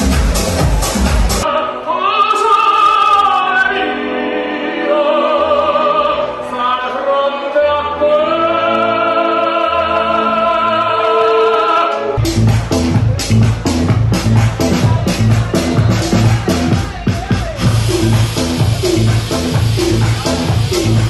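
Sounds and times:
electronic dance music: 0.0 - 4.3, 11.0 - 21.0
operatic singing: 0.0 - 21.0.

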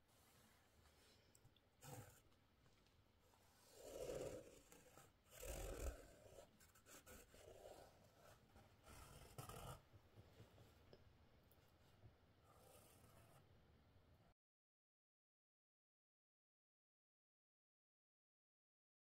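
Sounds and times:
pen scratching on canvas: 1.8 - 2.3, 3.4 - 10.8.

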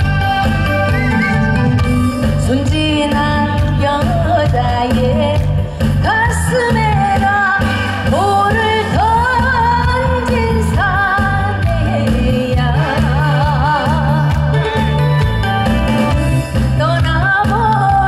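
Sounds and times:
instrumental backing track: 0.0 - 18.0
woman singing into microphone: 2.2 - 15.2, 16.6 - 18.0.

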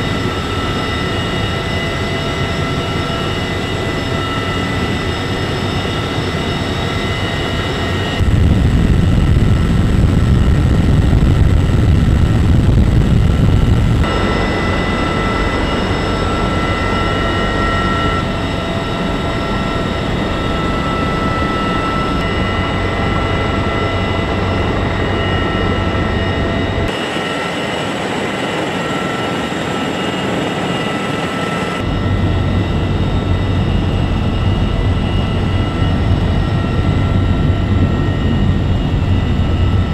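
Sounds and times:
helicopter turbines and rotors drone: 0.0 - 39.9
low rumble: 8.2 - 18.3.

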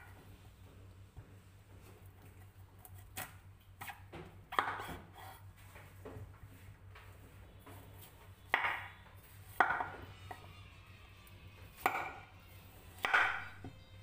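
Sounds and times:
knife chopping on wooden board: 3.2 - 5.3, 8.5 - 8.9, 9.6 - 10.0, 11.8 - 12.2, 13.0 - 13.8.

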